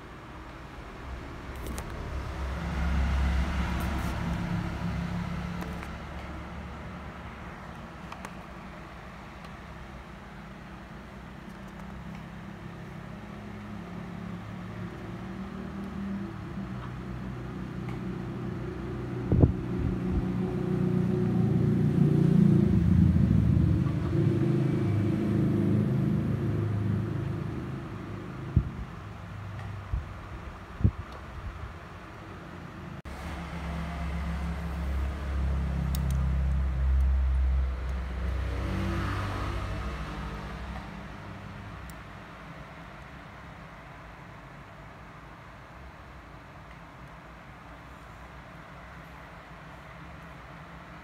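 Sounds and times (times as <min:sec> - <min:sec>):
vehicle engine rumbling past: 0:00.8 - 0:07.7, 0:12.6 - 0:29.5, 0:33.0 - 0:41.9
low rumble: 0:19.2 - 0:28.9.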